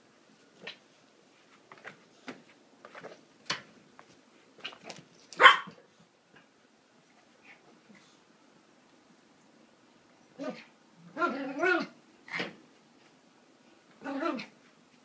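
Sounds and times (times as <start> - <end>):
small dog barking: 5.4 - 5.8.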